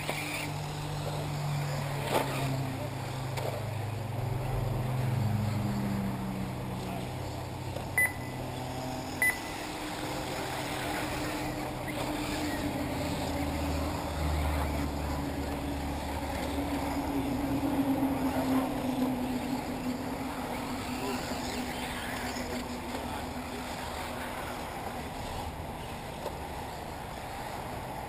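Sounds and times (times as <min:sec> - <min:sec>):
electric rc car motors droning: 0:00.0 - 0:28.0
short high beeps: 0:08.0 - 0:08.4, 0:09.2 - 0:09.6.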